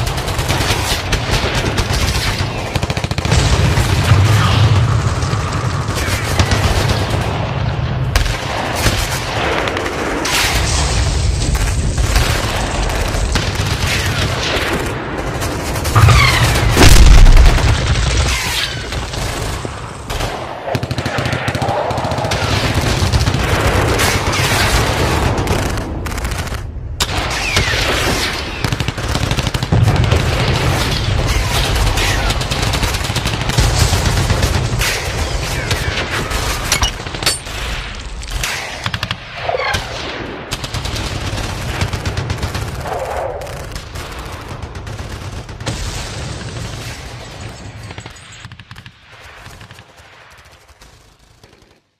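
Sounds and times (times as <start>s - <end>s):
machine-gun and rifle fire: 0.0s - 51.9s
loud explosion: 3.3s - 8.4s, 16.0s - 18.9s.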